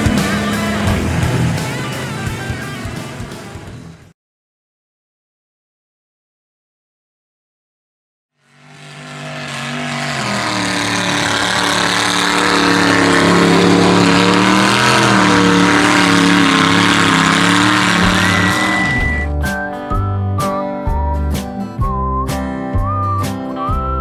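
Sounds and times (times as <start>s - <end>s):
truck engine revving hard: 0.0s - 4.1s, 8.4s - 19.3s
music with a beat: 19.1s - 24.0s.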